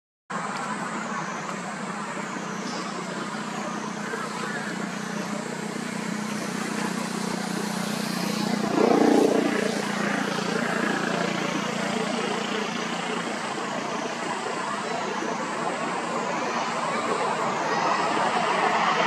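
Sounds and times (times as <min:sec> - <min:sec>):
low engine-like hum: 0:00.3 - 0:19.0
faint wavering high drone: 0:01.0 - 0:19.0.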